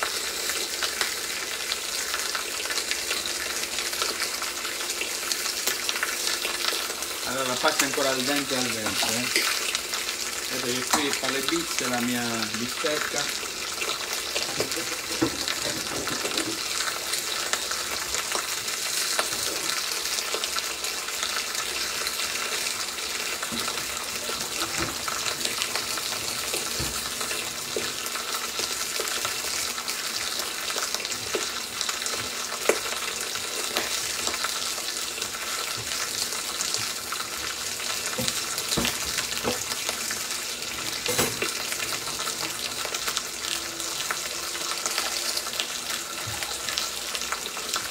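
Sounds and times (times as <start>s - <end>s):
steak sizzling in pan: 0.0s - 47.9s.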